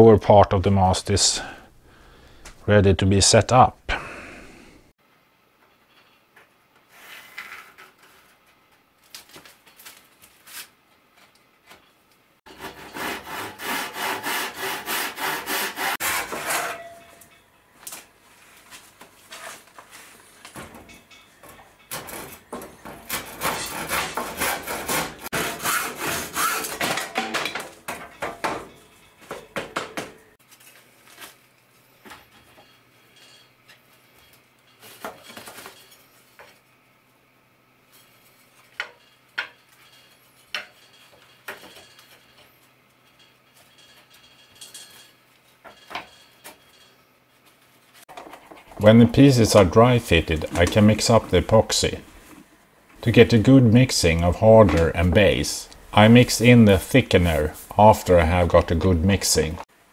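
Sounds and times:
handsaw cutting wood: 12.5s - 16.7s, 23.1s - 26.9s.

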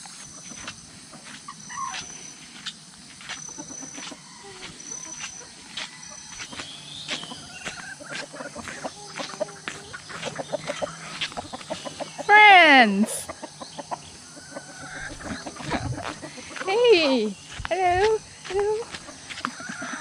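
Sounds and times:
bird chirps: 0.1s - 20.0s
chickens clucking softly: 3.3s - 12.3s, 13.0s - 16.8s, 18.4s - 20.0s.

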